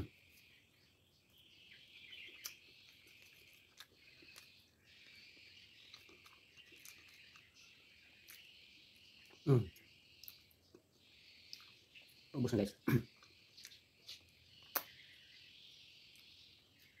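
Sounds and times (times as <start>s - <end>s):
faint high wavering chirping: 0.0s - 17.0s
soft clicks of eating: 2.2s - 8.5s, 9.2s - 10.9s, 13.1s - 15.0s.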